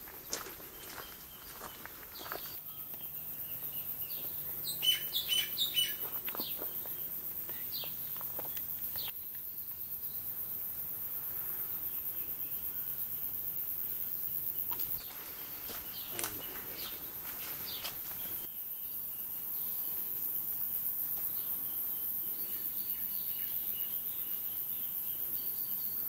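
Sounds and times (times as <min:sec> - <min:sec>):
birds chirping: 0:00.0 - 0:09.3, 0:14.6 - 0:19.0
faint background noise: 0:00.0 - 0:26.0.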